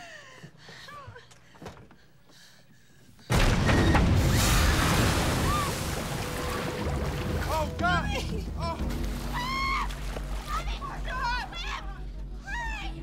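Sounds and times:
boat capsizing splash: 4.0s - 11.1s
churning water: 4.0s - 11.6s.

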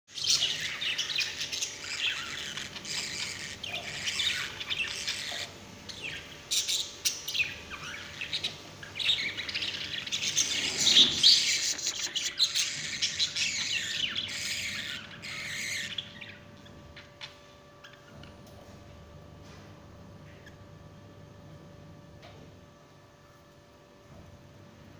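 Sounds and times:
budgerigars chattering: 0.1s - 18.2s.

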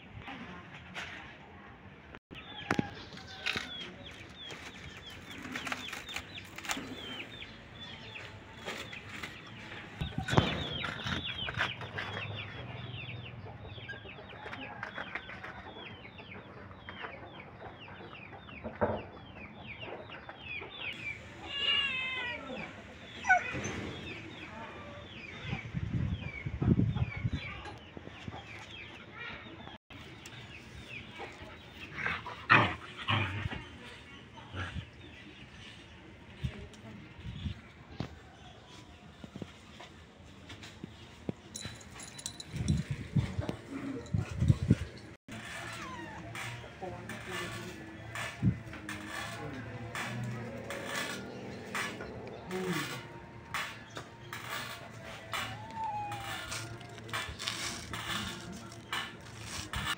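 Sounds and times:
chickens clucking: 2.3s - 21.5s.

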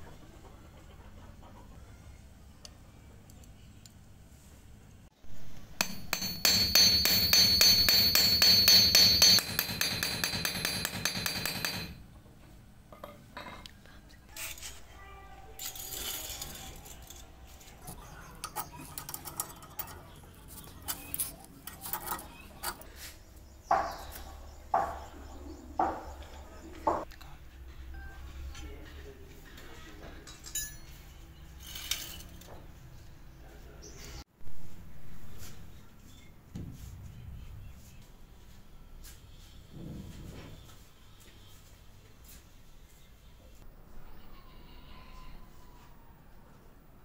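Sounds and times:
metal clinks and taps: 5.8s - 12.0s.

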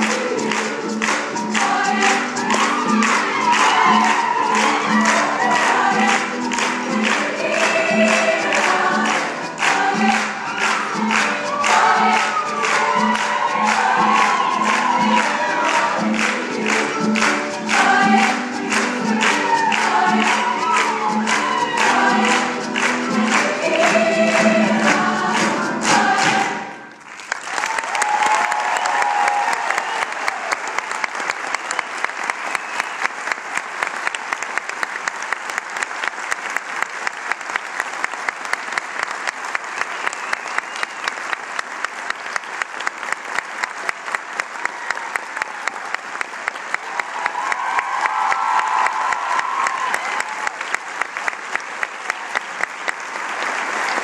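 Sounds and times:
women's choir singing: 0.0s - 26.9s
audience applause: 0.0s - 54.0s
singers clapping in time: 0.0s - 54.0s.

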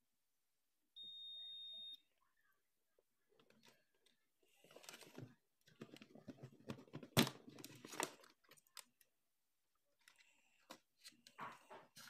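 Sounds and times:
plastic parts rustling and knocking: 3.4s - 9.0s, 10.0s - 12.0s.

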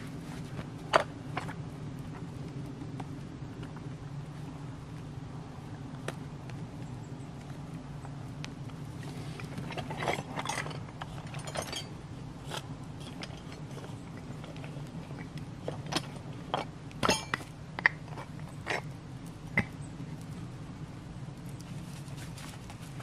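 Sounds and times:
metal tools clinking: 9.7s - 12.0s, 17.0s - 17.5s.

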